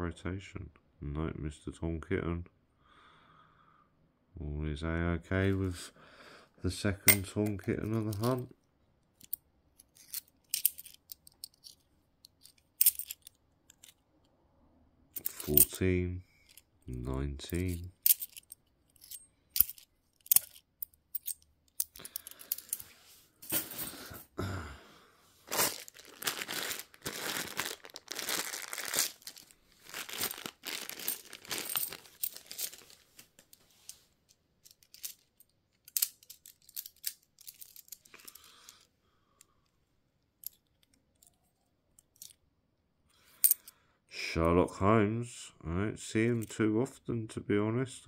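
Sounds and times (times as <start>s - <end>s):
coins clicking: 7.1s - 8.4s, 9.2s - 14.0s, 15.2s - 15.8s, 17.4s - 24.2s, 30.1s - 33.0s, 34.6s - 38.8s
packaging tearing and crinkling: 25.5s - 33.2s.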